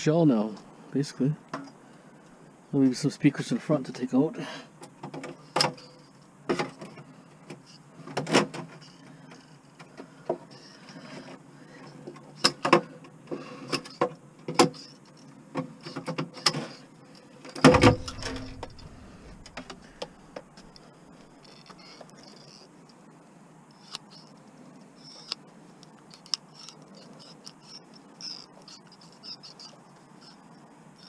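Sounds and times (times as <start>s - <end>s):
heavy thump: 17.6s - 20.1s
handling knocks: 17.6s - 20.4s.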